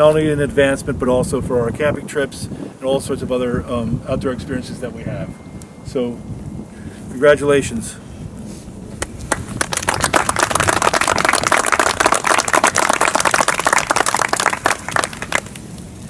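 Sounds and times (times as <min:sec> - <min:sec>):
people clapping: 0:09.0 - 0:15.6.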